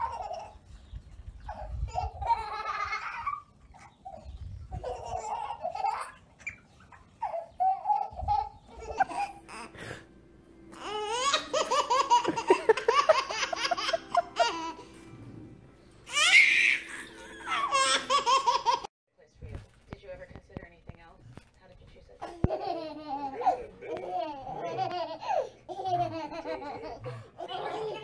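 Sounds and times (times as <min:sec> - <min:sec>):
baby belly laughing: 0:00.0 - 0:00.6, 0:01.4 - 0:09.7, 0:10.8 - 0:14.9, 0:16.1 - 0:18.9, 0:22.2 - 0:28.0.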